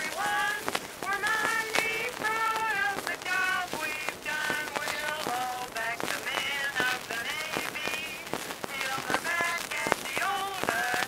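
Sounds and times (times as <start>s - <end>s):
recording clicks and crackle: 0.0s - 11.0s
women singing: 0.0s - 11.0s.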